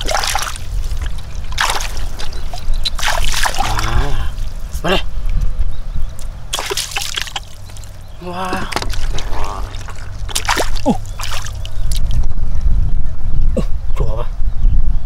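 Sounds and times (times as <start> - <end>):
water splashing and sloshing: 0.0 - 4.8, 6.2 - 12.3
steady low rumble: 0.0 - 14.6.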